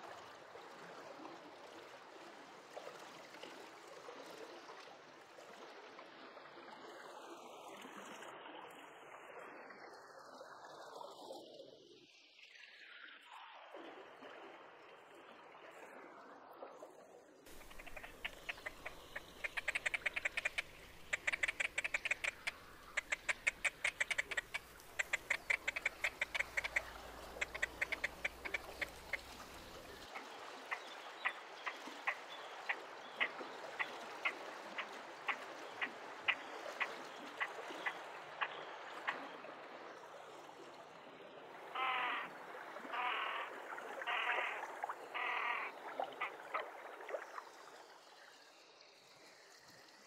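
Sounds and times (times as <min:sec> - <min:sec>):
grebes calling: 0:17.5 - 0:30.1, 0:41.8 - 0:42.2, 0:42.9 - 0:44.6, 0:45.2 - 0:46.4.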